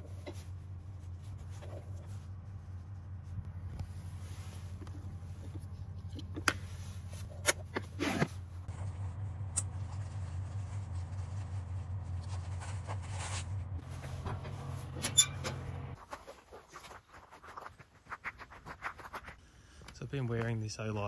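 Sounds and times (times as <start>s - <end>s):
steady low hum: 0.0s - 16.0s
jacket fabric rustling: 6.6s - 15.0s.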